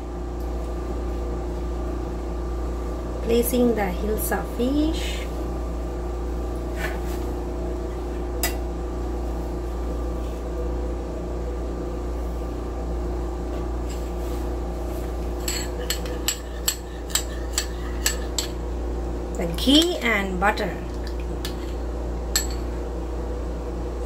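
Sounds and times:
machine hum: 0.0 - 24.0
metal spoon clinking ceramic bowl: 15.4 - 18.6, 22.3 - 22.6.

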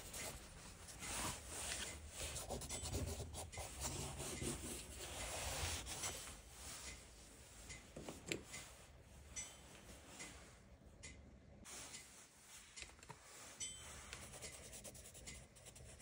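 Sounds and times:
crayon scribbling on paper: 14.2 - 16.0.

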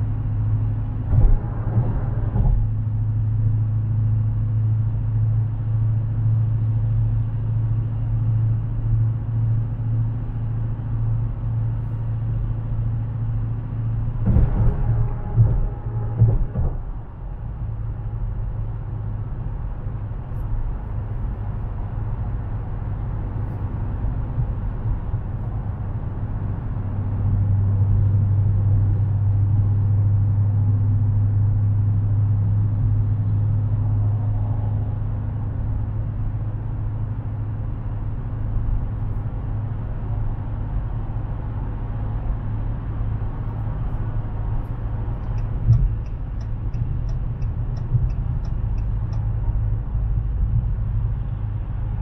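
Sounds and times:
car engine drone: 0.0 - 52.0
brief thump: 14.2 - 17.0.

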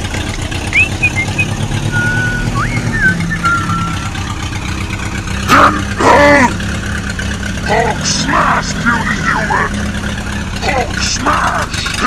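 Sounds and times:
tractor engine idling: 0.0 - 12.0
high whistled chirps: 0.6 - 4.4.

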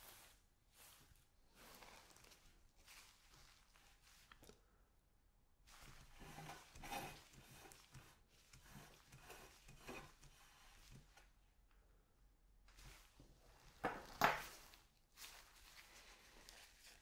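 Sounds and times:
plate scraping on tabletop: 6.2 - 7.7.

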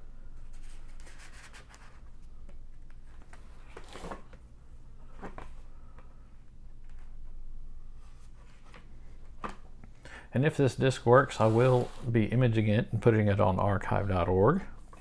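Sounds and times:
short scrapes: 11.2 - 12.2.

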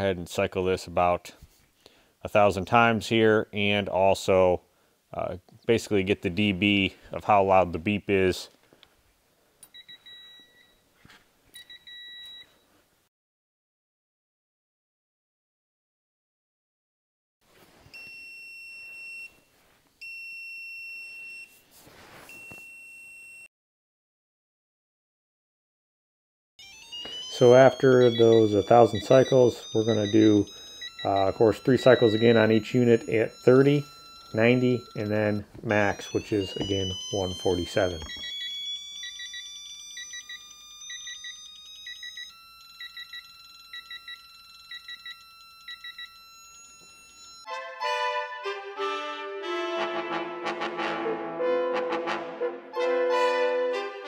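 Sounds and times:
faint steady high tone: 9.6 - 10.9, 22.2 - 23.5, 26.6 - 47.5
high-pitched steady beeps: 26.6 - 47.5.

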